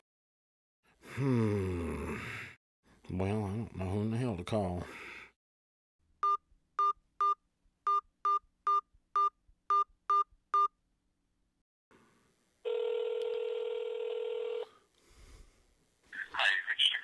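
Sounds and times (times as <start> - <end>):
phone ringing tone: 12.6 - 14.8.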